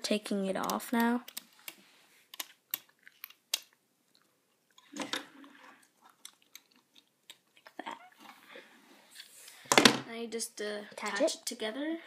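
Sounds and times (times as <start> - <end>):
rubber bands clicking and snapping: 0.6 - 5.2, 6.0 - 7.8.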